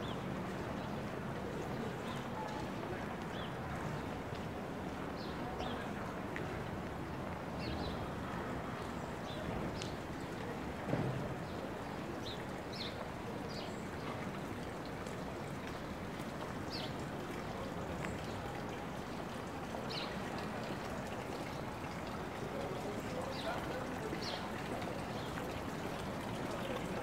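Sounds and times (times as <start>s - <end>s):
running water rushing: 7.6s - 27.0s.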